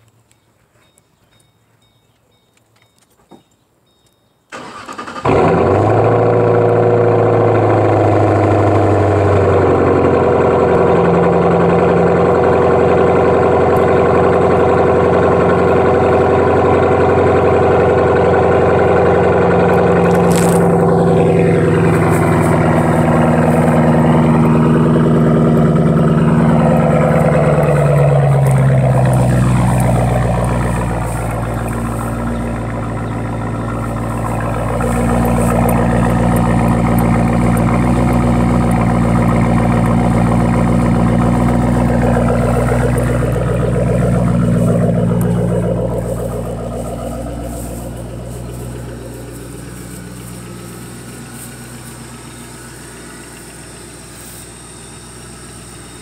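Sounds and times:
engine starter cranking: 4.5s - 6.4s, 19.4s - 54.2s
engine idling loudly: 4.6s - 56.0s.

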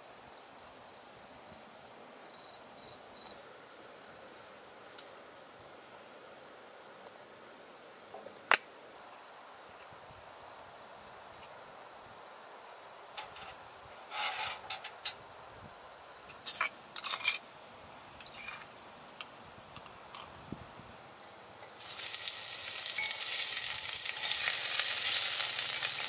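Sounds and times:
crickets chirring: 0.1s - 26.0s
cooking utensils clattering: 13.2s - 15.2s, 16.3s - 17.4s, 18.2s - 18.7s, 22.8s - 26.0s.

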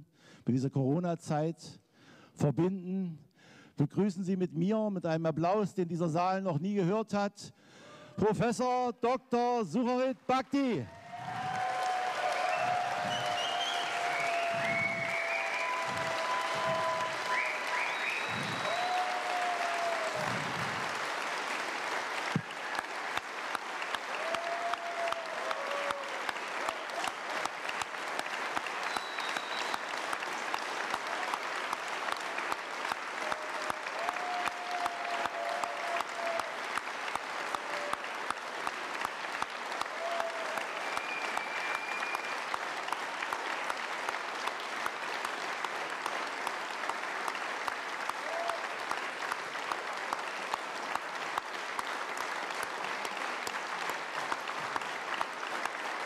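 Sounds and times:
shouts and cheers: 10.9s - 20.6s, 23.9s - 27.6s, 33.1s - 38.4s, 39.7s - 42.5s, 48.1s - 48.9s
dense audience applause: 10.9s - 56.0s
rhythmic clapping in unison: 11.2s - 56.0s.

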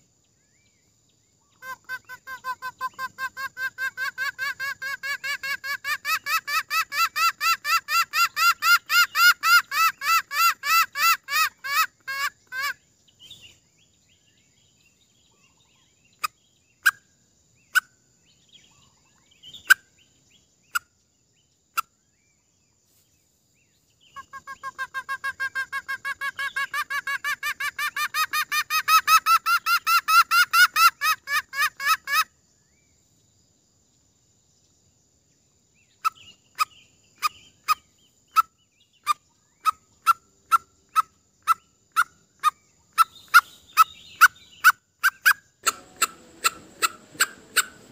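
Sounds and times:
junglefowl lure clucking: 39.1s - 47.9s.

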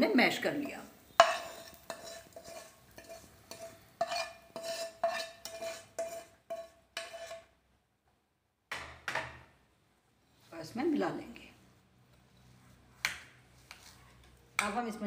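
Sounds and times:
spoon scraping frying pan: 0.3s - 7.6s, 11.2s - 15.0s.

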